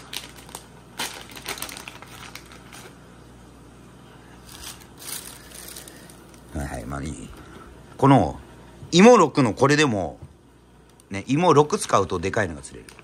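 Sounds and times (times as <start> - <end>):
plastic packet rustling and crinkling: 0.0 - 3.0, 4.4 - 6.9, 11.8 - 13.0.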